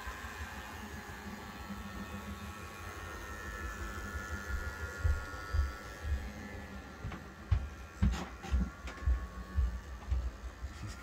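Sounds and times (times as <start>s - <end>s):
model train motor whining: 0.0s - 7.0s.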